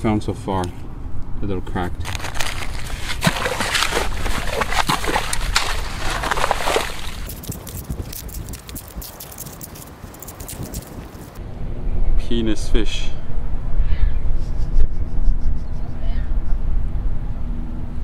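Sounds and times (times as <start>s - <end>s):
small crackles: 2.0s - 3.2s, 7.2s - 11.4s
water sloshing and gurgling in sand: 2.1s - 7.4s.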